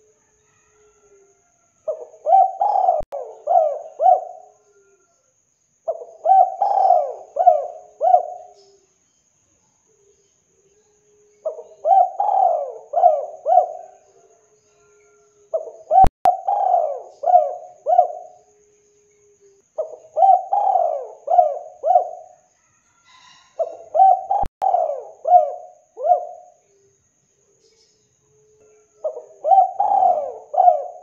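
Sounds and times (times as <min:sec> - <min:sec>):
dove cooing: 0:01.9 - 0:05.1, 0:05.9 - 0:08.8, 0:11.4 - 0:22.4, 0:23.1 - 0:26.7, 0:28.7 - 0:31.0.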